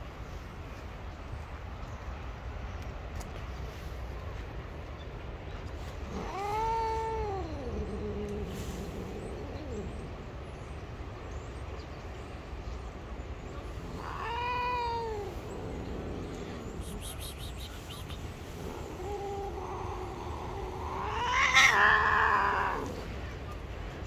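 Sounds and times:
cat meowing: 13.8 - 16.2, 18.6 - 23.0.

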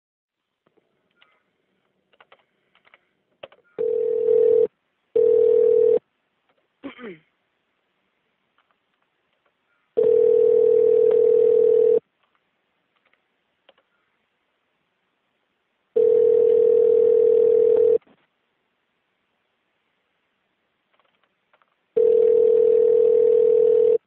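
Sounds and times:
telephone ringback tone: 3.8 - 6.0, 10.0 - 12.0, 16.0 - 18.0, 22.0 - 24.0.

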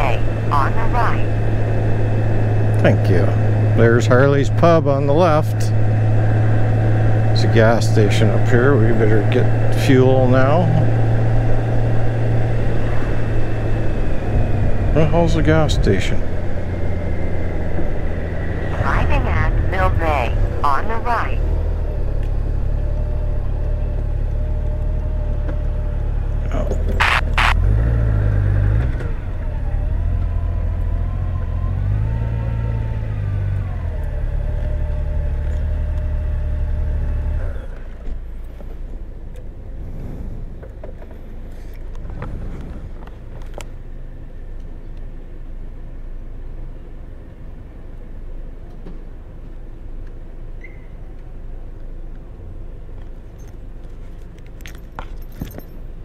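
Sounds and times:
motorcycle engine running: 0.0 - 20.6.

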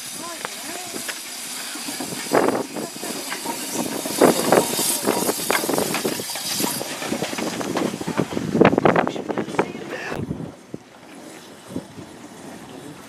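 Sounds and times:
steam hissing: 0.0 - 10.2
steam locomotive exhaust chuffing: 0.0 - 13.0.

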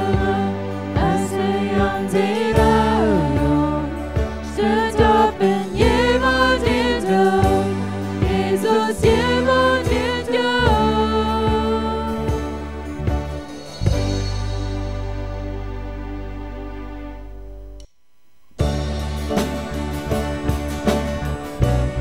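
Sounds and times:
voices singing a hymn: 0.0 - 13.1
instrumental accompaniment: 0.0 - 22.0.

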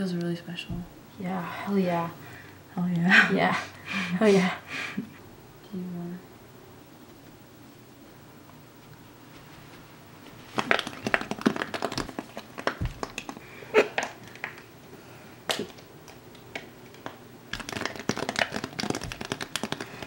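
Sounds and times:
fidget toy bubbles popping: 17.6 - 20.0.

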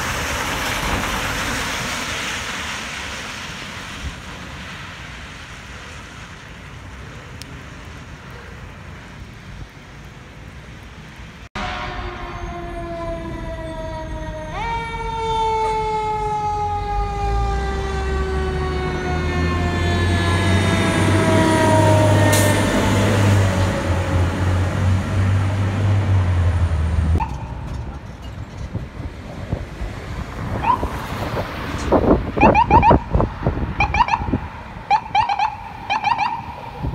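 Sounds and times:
fire truck mechanical siren: 11.6 - 24.3, 27.2 - 27.9, 30.6 - 31.0, 32.3 - 33.2, 33.8 - 36.9.

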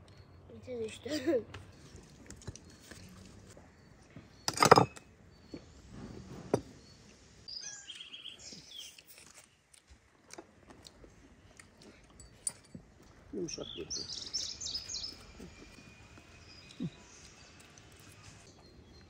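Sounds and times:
birds chirping: 0.1 - 9.1, 13.1 - 19.0
cutlery and dishes clinking: 4.5 - 5.1.

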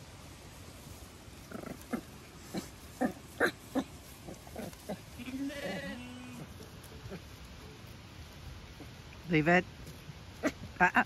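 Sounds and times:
lamb bleating: 5.2 - 6.5.

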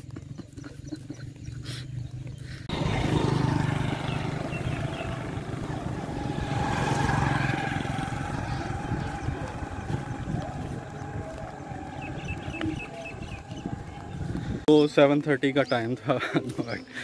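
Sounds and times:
motorcycle engine running: 2.0 - 14.7
rushing wind noise: 2.7 - 14.7.

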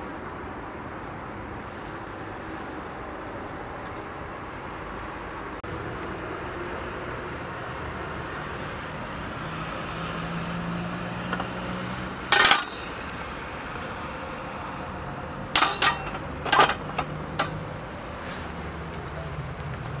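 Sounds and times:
metal cookware clinking: 12.3 - 13.2, 15.5 - 17.7.

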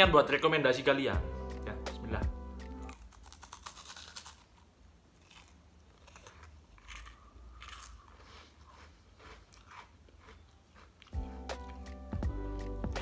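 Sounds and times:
person chewing a biscuit: 2.6 - 12.9.

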